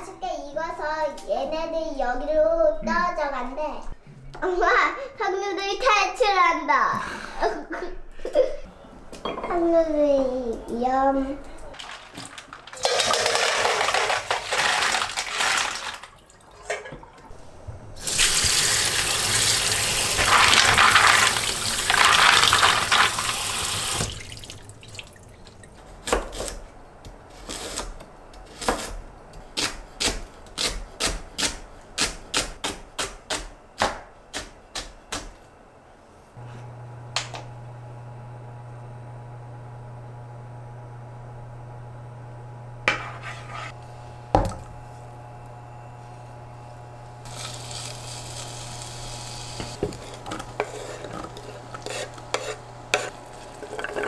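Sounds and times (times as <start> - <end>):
tap water running and splashing: 18.0 - 25.6, 53.0 - 54.0.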